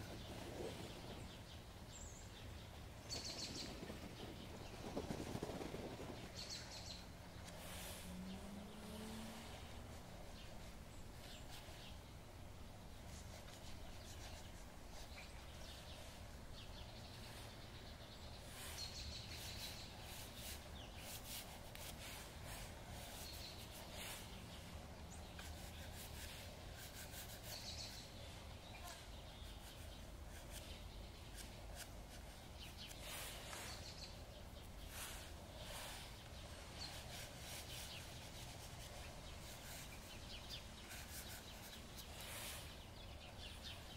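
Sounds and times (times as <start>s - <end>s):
pastel scratching on paper: 25.4s - 28.0s, 36.8s - 42.6s.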